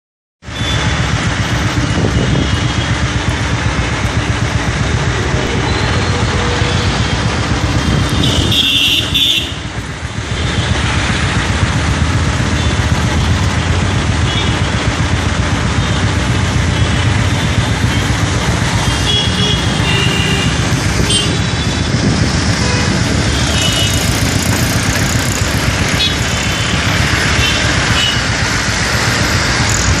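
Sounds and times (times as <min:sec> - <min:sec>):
vehicle engines in slow traffic: 0:00.4 - 0:30.0
horns tooting: 0:05.4 - 0:09.7, 0:22.5 - 0:28.4.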